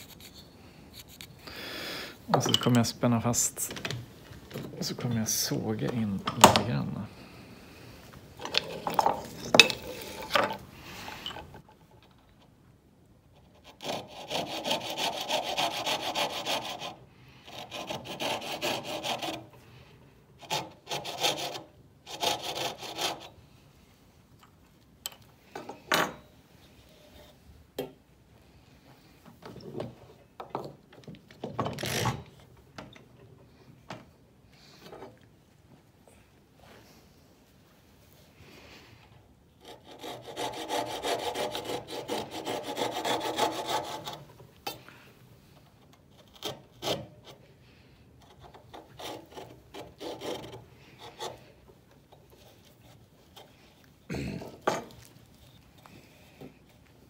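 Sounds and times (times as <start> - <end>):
saw cutting wood: 13.6 - 19.5, 20.4 - 23.3, 39.6 - 44.2, 48.8 - 51.4.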